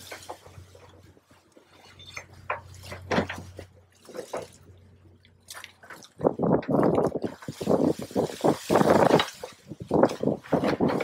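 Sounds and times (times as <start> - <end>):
low engine hum: 0.0 - 8.7
water splashing off crane bucket: 2.6 - 11.0.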